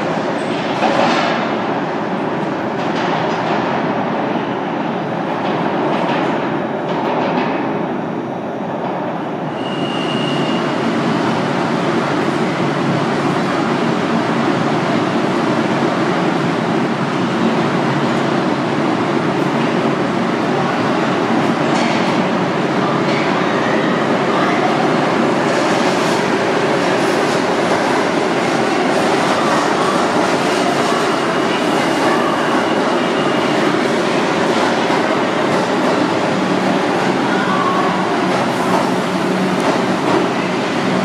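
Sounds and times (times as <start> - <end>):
high brake squeal: 9.5 - 10.8.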